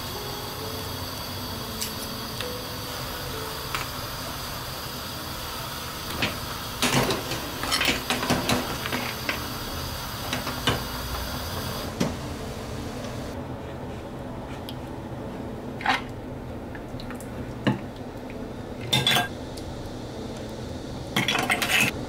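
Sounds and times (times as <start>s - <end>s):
low hiss: 0.0s - 13.4s.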